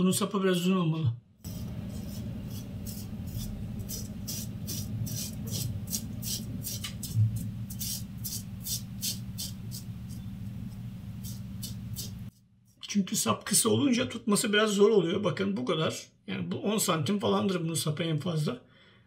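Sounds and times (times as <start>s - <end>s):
low steady hum: 1.5s - 12.3s
razor scraping stubble: 1.5s - 12.3s.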